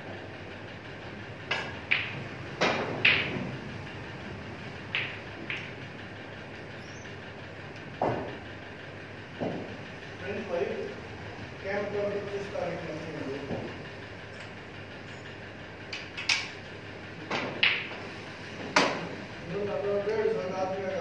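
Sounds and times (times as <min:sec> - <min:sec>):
snooker balls clicking: 0:01.4 - 0:06.8, 0:17.2 - 0:19.2.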